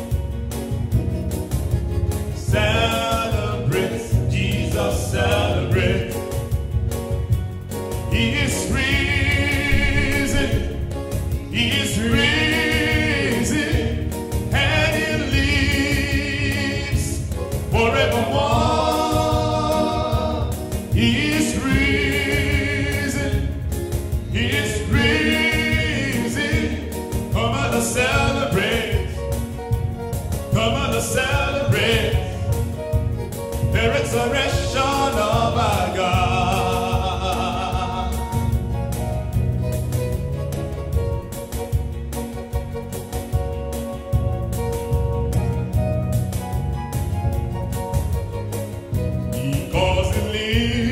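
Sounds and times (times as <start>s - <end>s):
instrumental backing music: 0.0s - 50.9s
man singing into microphone: 2.4s - 6.3s, 8.1s - 23.6s, 24.3s - 29.3s, 30.5s - 32.6s, 33.6s - 38.6s, 49.3s - 50.9s.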